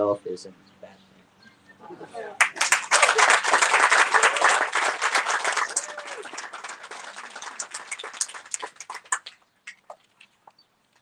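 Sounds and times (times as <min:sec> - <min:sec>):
audience applauding: 0:02.4 - 0:09.8.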